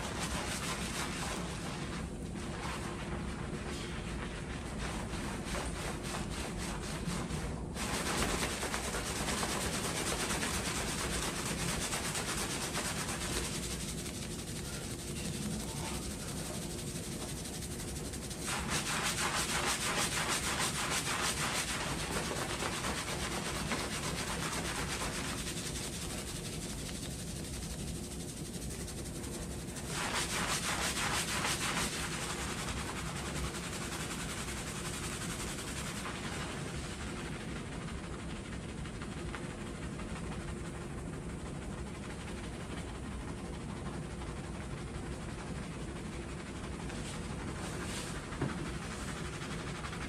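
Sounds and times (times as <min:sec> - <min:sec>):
fingers scrubbing lathered hair: 0:00.0 - 0:40.6, 0:43.0 - 0:50.0.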